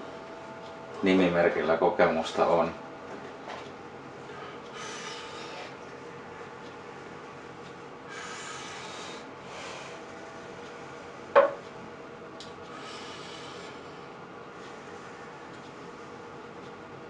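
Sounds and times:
sharp knock: 11.4s - 11.6s.

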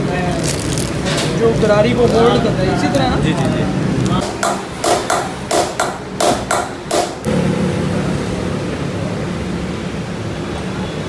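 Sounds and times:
hammer striking metal punch: 4.2s - 7.3s.

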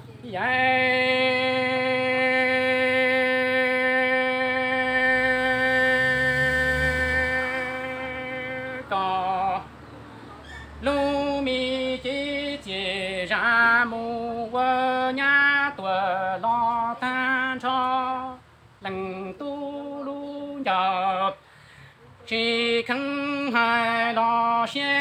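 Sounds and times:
person singing with vibrato: 0.0s - 9.8s, 10.6s - 25.0s.

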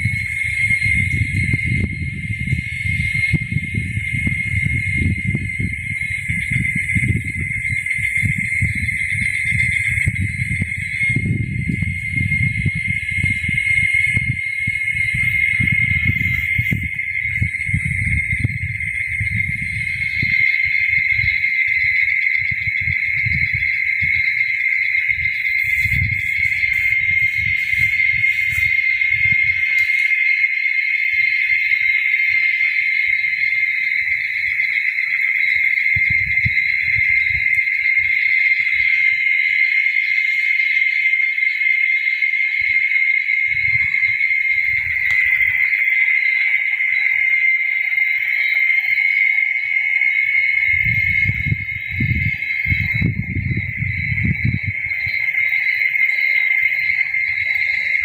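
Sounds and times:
cicadas droning: 0.0s - 58.0s.

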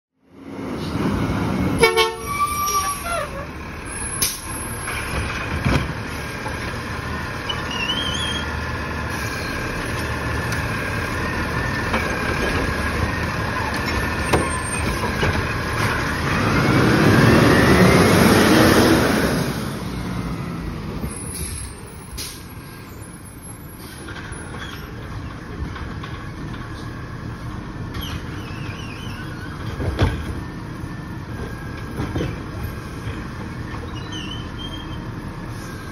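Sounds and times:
garbage truck diesel engine: 0.2s - 35.9s.

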